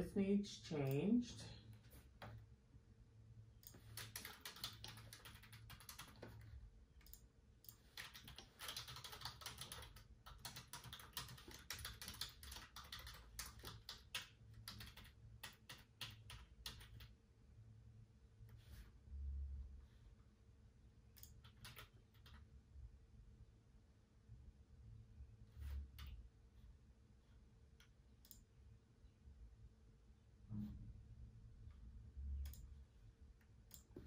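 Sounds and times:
typing on a keyboard: 3.6 - 17.2, 21.2 - 22.5.

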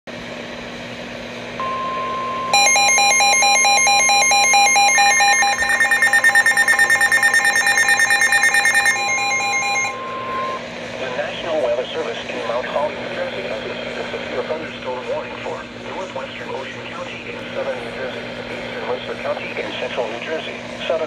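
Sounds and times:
fast pulsing high beep: 1.6 - 10.6
steady alarm tone: 1.6 - 10.6
warbling electronic alarm: 1.6 - 10.6.

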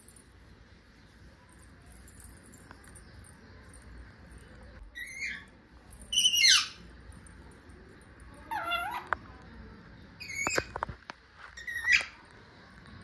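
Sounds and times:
parakeet calls: 6.1 - 6.9.

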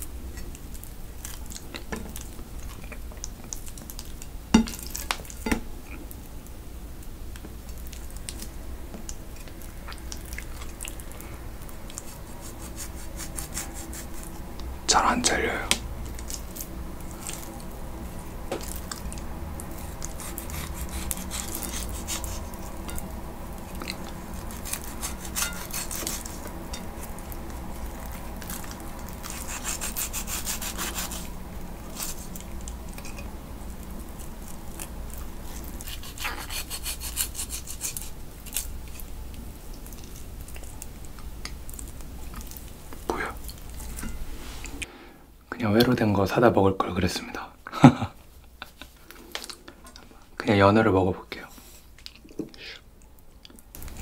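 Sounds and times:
knife sawing through fish skin: 12.1 - 14.3, 19.8 - 22.6, 24.4 - 26.5, 29.3 - 31.3, 31.9 - 32.3, 35.8 - 38.2.

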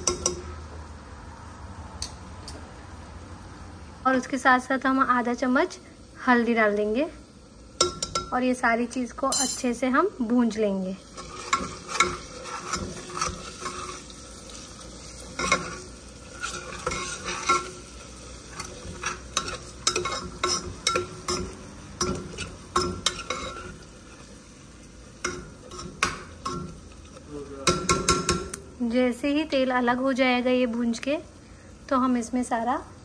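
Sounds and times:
food sizzling in oil: 0.0 - 33.0
metal spoon scraping a pot: 11.1 - 14.6, 15.2 - 24.2, 25.2 - 28.4.

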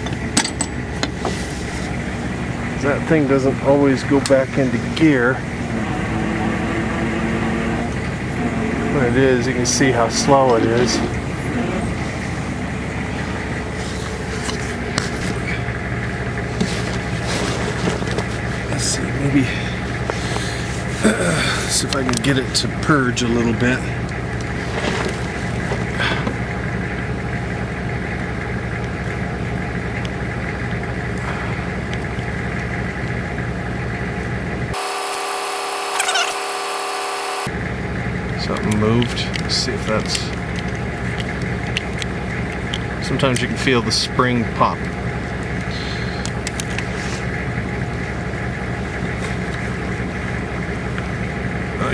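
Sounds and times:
tow truck engine idling: 0.0 - 35.8, 36.6 - 51.9
high whir of steady tones: 34.7 - 37.6.

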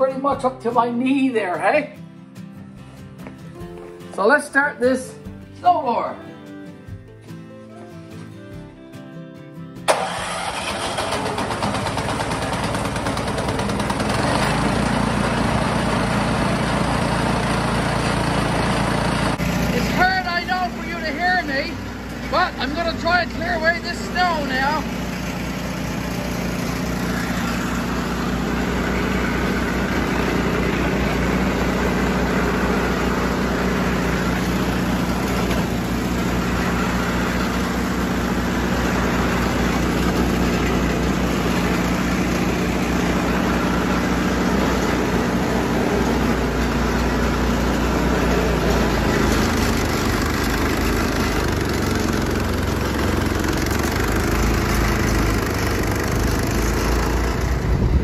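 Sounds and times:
snowblower engine running: 9.9 - 58.0.

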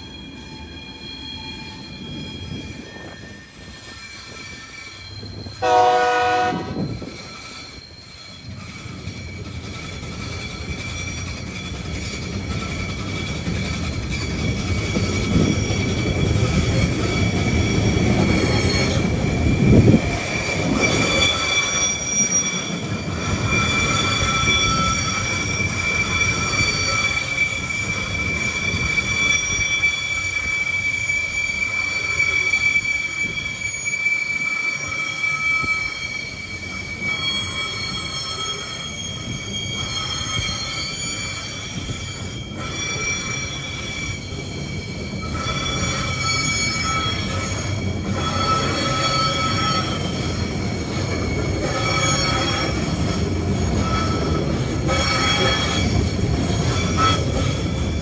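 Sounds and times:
high-pitched wheel squeal: 0.0 - 58.0
rumble of train wagons: 0.0 - 58.0
train horn blast: 5.6 - 7.0.

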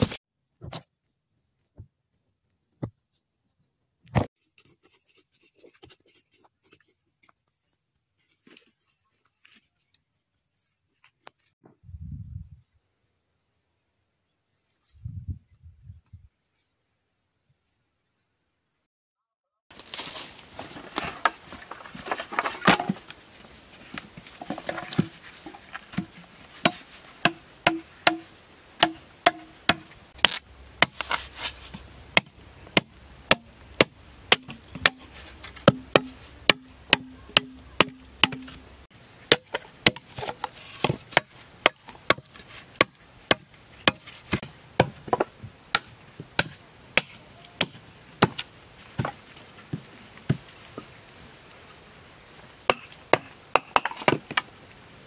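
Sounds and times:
machete chopping bamboo: 25.9 - 31.3, 32.1 - 38.6, 39.3 - 49.1, 52.7 - 54.3.

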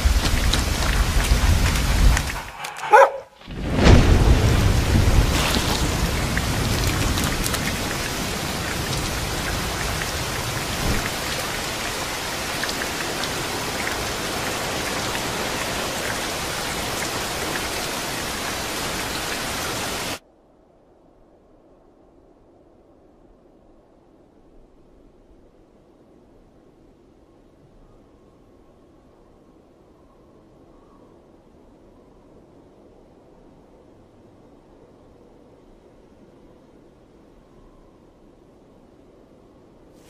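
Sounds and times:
low rumble of thunder: 0.0 - 20.0
steady rain: 0.0 - 20.2.

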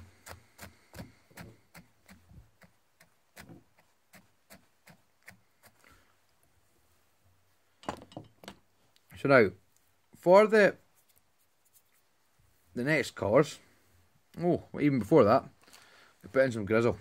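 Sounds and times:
comb strokes through fibres: 10.8 - 14.1.

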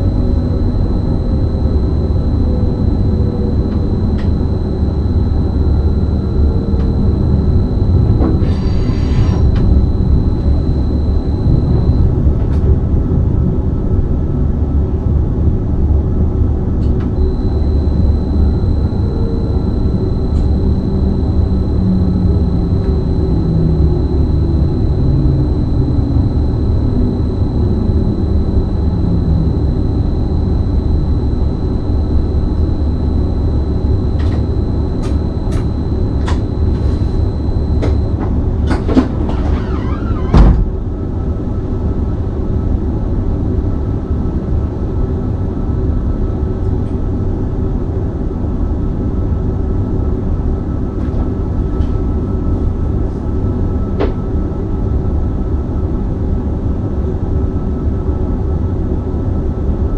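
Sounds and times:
high steady tone: 0.0 - 12.7, 16.8 - 38.7
train hum and rumble: 0.0 - 59.9
falling low tone: 9.2 - 12.9.

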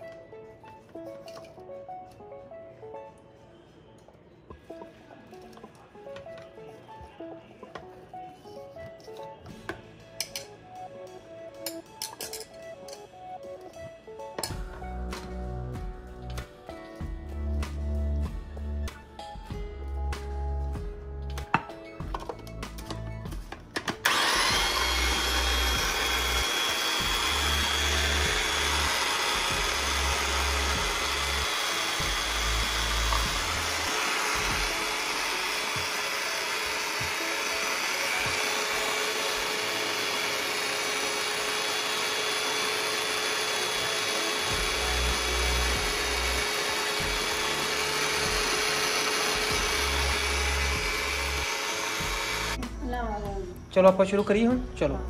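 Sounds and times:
food processor motor whine: 24.0 - 52.6.

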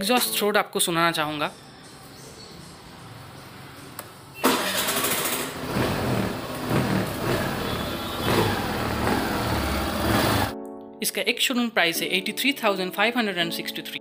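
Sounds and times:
scooter engine starting and running: 3.1 - 10.5.

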